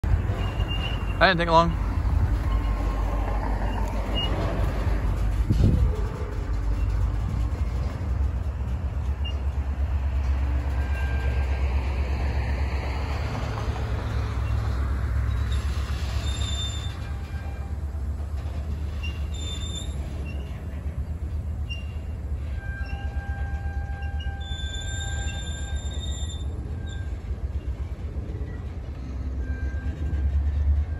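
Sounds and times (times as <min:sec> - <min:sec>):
train wheels rumbling on rail: 0:00.0 - 0:30.9
wheels clattering: 0:00.0 - 0:30.9
high-pitched wheel squeals: 0:00.1 - 0:04.6, 0:09.1 - 0:09.6, 0:10.7 - 0:11.8, 0:14.3 - 0:20.7, 0:21.6 - 0:27.8.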